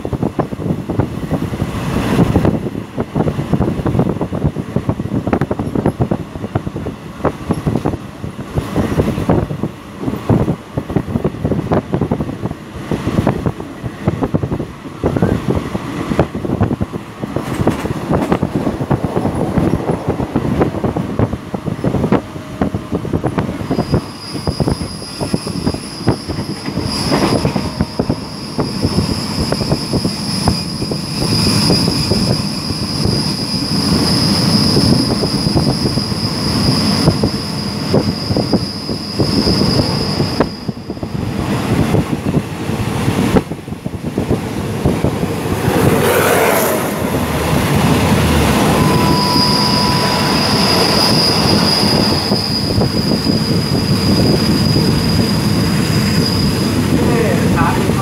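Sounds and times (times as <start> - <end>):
passenger train running: 0.0 - 58.0
high-pitched squeal: 23.6 - 41.2, 45.2 - 57.4.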